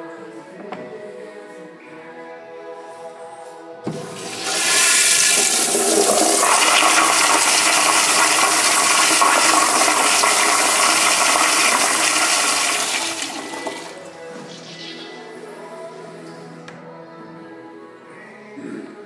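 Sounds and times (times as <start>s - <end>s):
toilet flushing: 3.9s - 14.1s.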